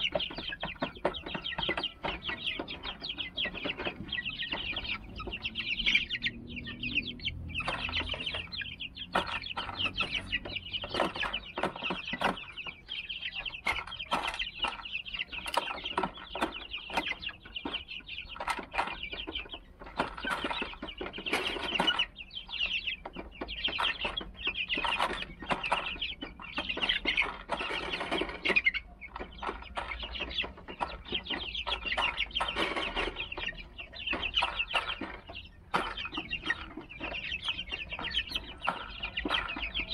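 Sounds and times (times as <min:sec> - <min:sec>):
chicks peeping: 0:00.0 - 0:39.9.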